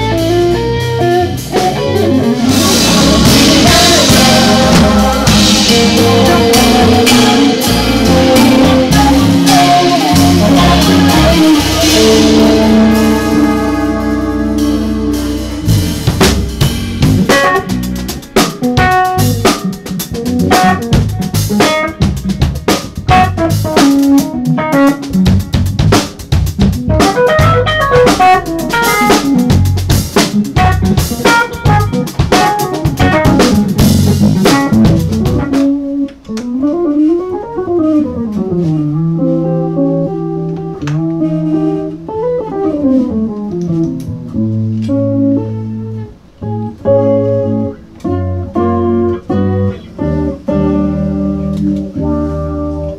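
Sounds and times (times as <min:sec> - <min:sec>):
busy drumming: 0:00.0 - 0:39.0
jazz fusion band playing: 0:00.0 - 0:52.9
cymbal crash: 0:11.6 - 0:17.4.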